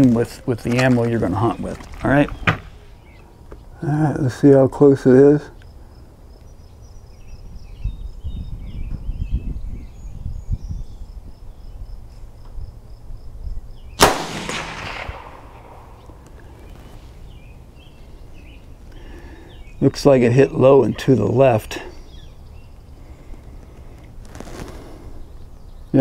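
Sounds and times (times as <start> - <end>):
rifle shot with echo: 14.0 - 16.4.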